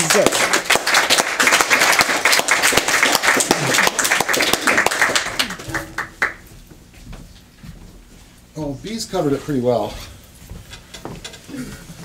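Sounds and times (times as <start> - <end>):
audience applauding: 0.0 - 6.5.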